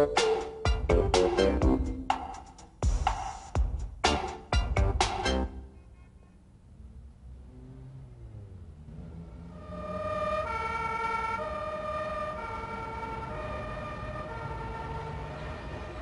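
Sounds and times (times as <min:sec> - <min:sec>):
two-tone siren: 0:07.6 - 0:16.0.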